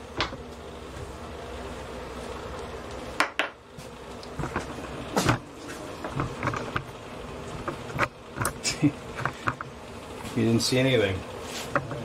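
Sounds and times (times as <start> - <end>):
steady hum: 0.0 - 12.0
knocks and clunks of handling: 4.3 - 6.9, 7.5 - 9.8.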